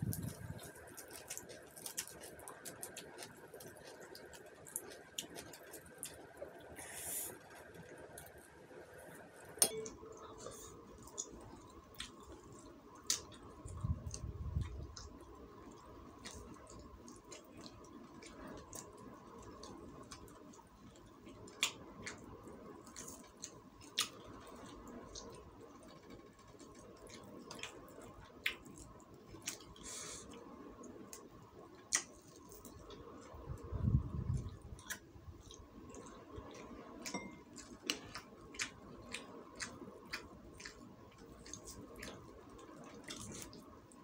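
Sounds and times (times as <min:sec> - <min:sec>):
cooked bird tearing with crackles: 0:00.0 - 0:06.4.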